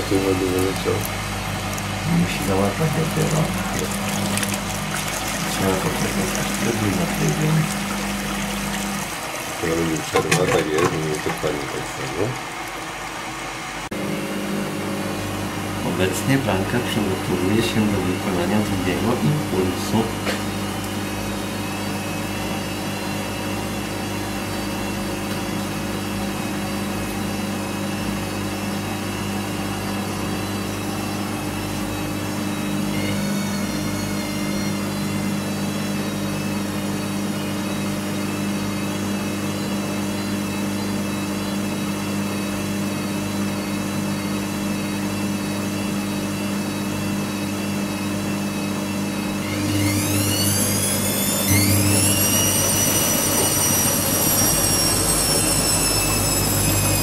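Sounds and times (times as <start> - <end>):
faint wavering whine: 0.0 - 12.4, 49.2 - 57.0
washing machine hum: 0.0 - 57.0.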